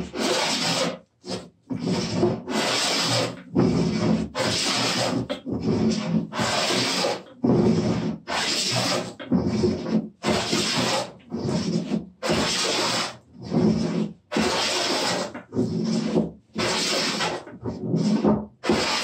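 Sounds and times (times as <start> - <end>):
hand plane rasping on wood: 0.0 - 19.0
plane scraping back: 0.0 - 19.0.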